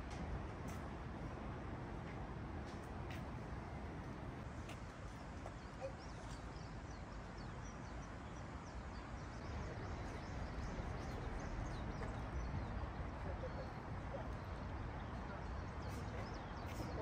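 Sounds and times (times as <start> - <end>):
small birds chirping: 4.6 - 17.0.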